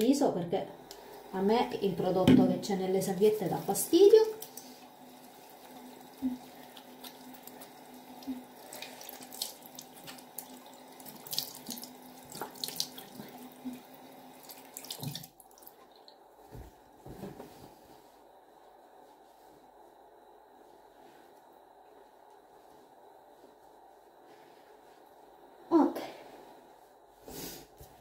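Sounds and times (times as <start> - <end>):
water splashing as face rinsed: 0.8 - 16.3.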